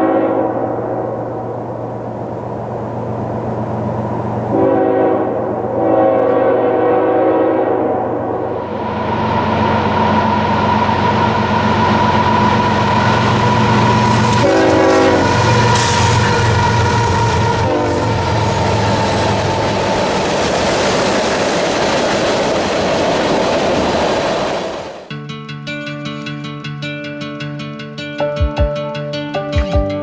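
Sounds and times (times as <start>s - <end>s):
locomotive air horn blasts: 0.0s - 1.2s, 4.5s - 8.2s, 12.0s - 19.4s
locomotive engine hum: 0.0s - 25.1s
rail noise: 0.0s - 25.1s.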